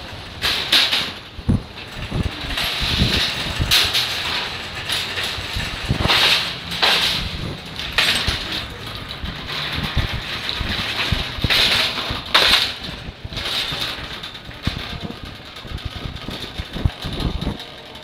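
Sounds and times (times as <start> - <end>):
cart wheels rolling on concrete: 0.0 - 18.0
wire shopping cart rattling: 0.0 - 18.0.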